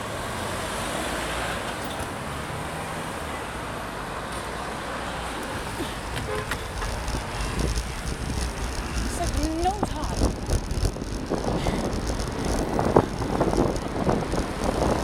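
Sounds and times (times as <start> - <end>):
wind rumble on microphone: 5.5 - 15.0
motorcycle passing: 5.6 - 15.0.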